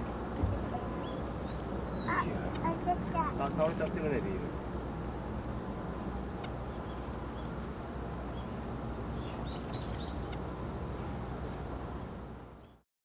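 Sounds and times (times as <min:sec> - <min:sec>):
jet engines rumbling: 0:00.0 - 0:12.6
faint high chirps: 0:00.5 - 0:02.8.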